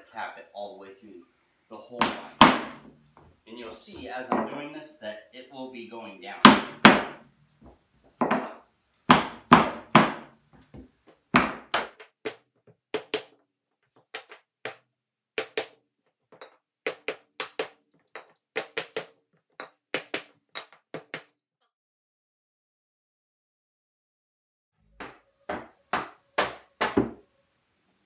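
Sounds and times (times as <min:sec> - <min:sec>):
mallet knocking on wooden block: 0:02.0 - 0:02.8, 0:25.0 - 0:27.2.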